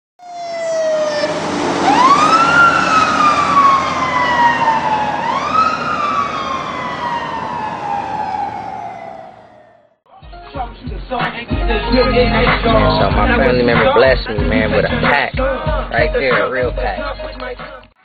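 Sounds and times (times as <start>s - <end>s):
siren wailing: 0.2s - 10.0s.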